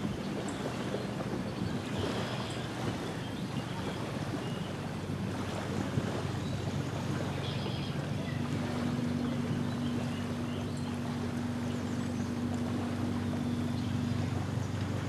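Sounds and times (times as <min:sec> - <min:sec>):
distant motorboat engine drone: 0:00.0 - 0:15.0
lake water: 0:00.0 - 0:15.0
steady hum tone: 0:00.0 - 0:15.0
wind: 0:00.0 - 0:15.0
faint bird calls: 0:06.1 - 0:15.0.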